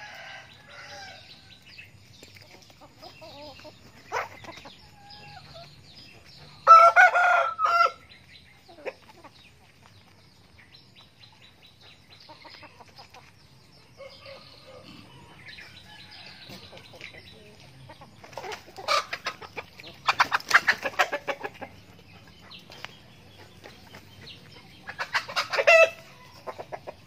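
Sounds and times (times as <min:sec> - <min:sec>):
small birds chirping faintly: 0:00.0 - 0:27.0
rooster crowing: 0:06.7 - 0:08.0
hens clucking softly: 0:14.0 - 0:27.0.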